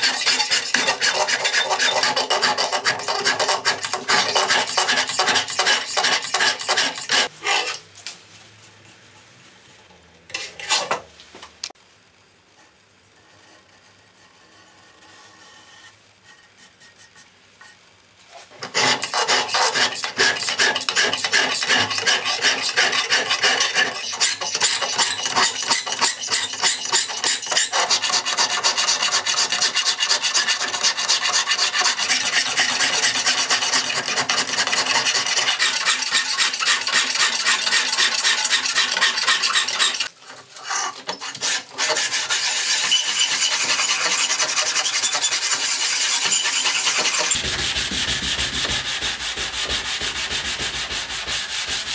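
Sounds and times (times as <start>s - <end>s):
file rasping on steel: 0.0s - 7.8s, 18.5s - 51.9s.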